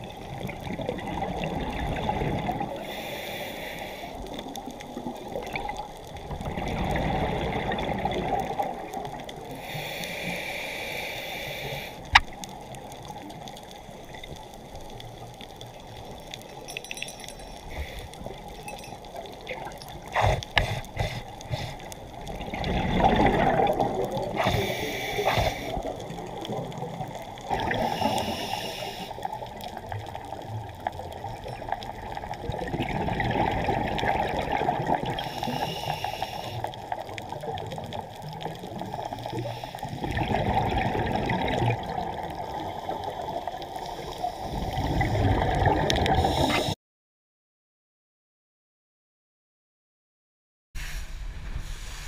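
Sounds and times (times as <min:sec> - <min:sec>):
diver's regulator bubbling and hissing: 0:00.0 - 0:14.7, 0:17.6 - 0:46.8.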